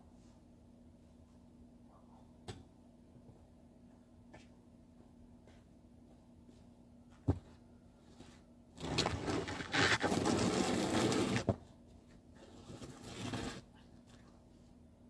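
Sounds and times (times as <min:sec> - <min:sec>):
snow shovel scraping pavement: 0:08.8 - 0:11.6, 0:12.6 - 0:13.6.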